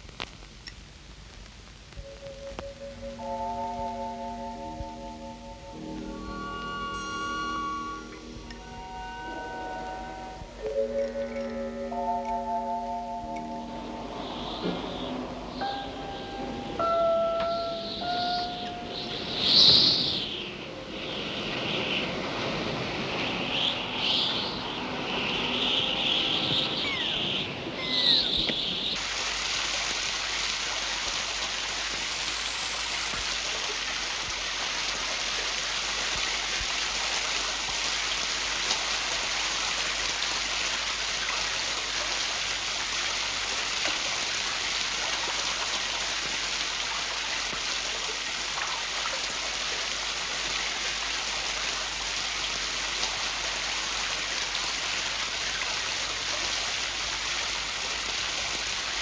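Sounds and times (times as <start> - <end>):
waterfall rushing: 2.0 - 59.0
short high-pitched sound: 2.1 - 20.0.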